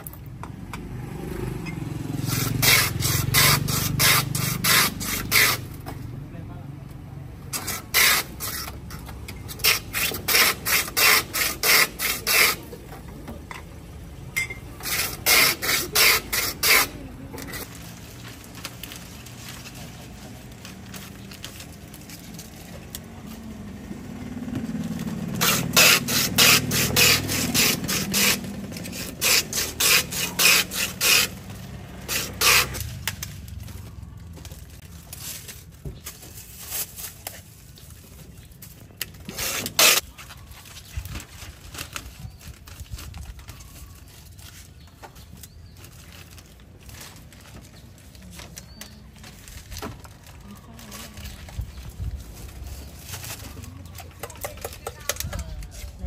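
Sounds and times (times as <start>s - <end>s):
ice shaver scraping ice: 2.2s - 5.8s, 7.6s - 12.8s, 14.8s - 17.8s, 25.3s - 32.9s, 39.2s - 40.1s.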